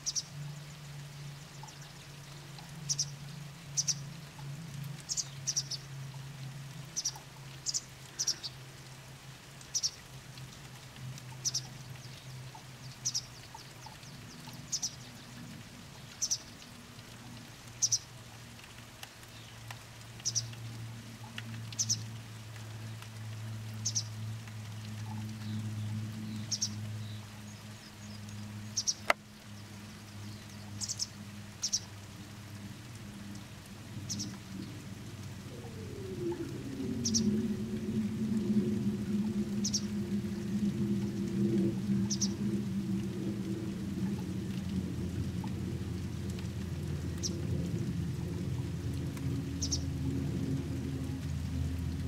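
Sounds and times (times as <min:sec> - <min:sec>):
steady low hum: 0:20.7 - 0:52.0.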